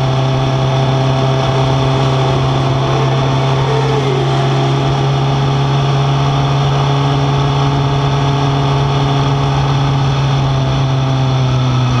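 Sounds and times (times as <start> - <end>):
motorcycle engine at low revs: 0.0 - 12.0
wind and road noise: 0.0 - 12.0.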